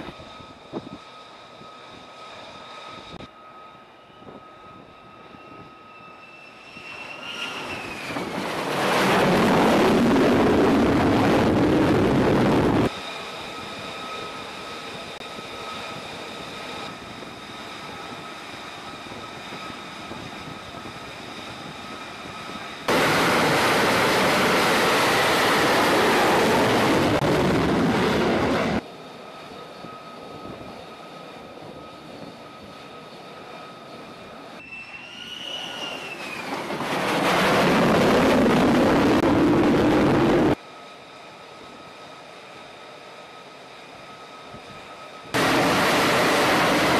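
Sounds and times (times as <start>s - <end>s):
falling whine: 0.0s - 28.8s, 29.4s - 40.6s, 45.2s - 46.9s
jet turbine whine: 0.0s - 46.9s
loud jet blast: 22.9s - 28.8s, 45.3s - 46.9s.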